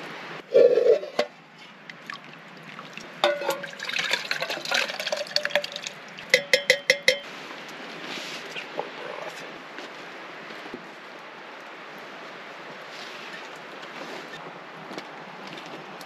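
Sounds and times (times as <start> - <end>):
broth pouring into pot: 2.8 - 6.3
ringing metal taps: 3.2 - 3.7, 6.3 - 7.3
metal mug clinking against pot: 3.2 - 7.3.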